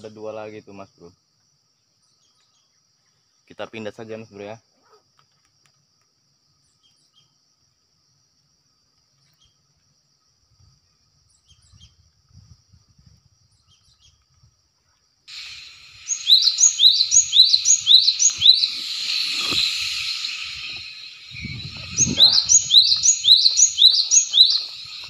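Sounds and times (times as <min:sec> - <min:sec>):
bird singing whistled notes: 0:15.3 - 0:25.0.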